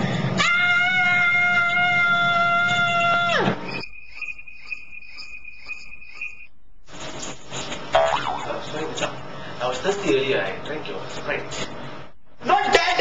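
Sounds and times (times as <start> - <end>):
crickets chirping: 2.4 - 6.6.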